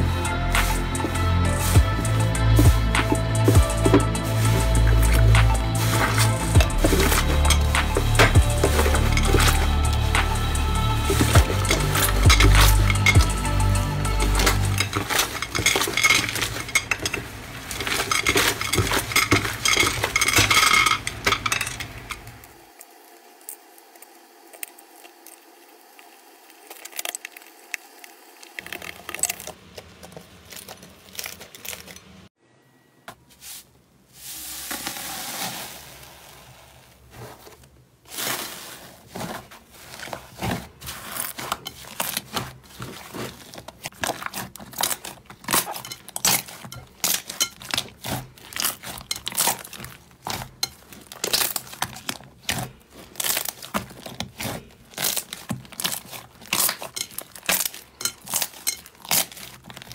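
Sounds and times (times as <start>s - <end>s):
slime squishing and popping: 40.4s - 59.9s.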